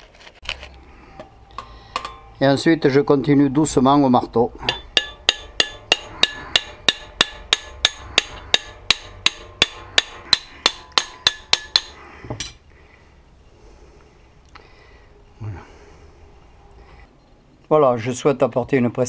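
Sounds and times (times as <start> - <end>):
hammer tapping metal: 1.6 - 2.3, 4.6 - 12.6.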